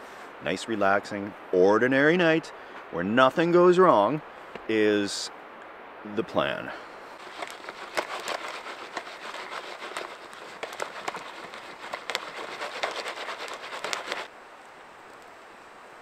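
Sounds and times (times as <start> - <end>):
faint steady hiss: 0.0 - 16.0
campfire crackling and popping: 7.2 - 14.3.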